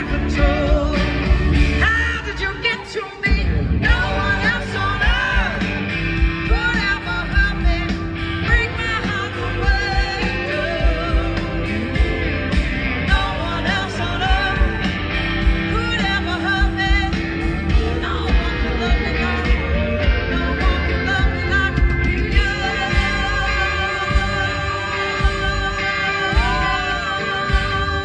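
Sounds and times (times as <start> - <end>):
woman singing: 0.0 - 5.8, 6.4 - 12.3, 13.1 - 15.0, 15.6 - 28.0
guitars: 0.0 - 28.0.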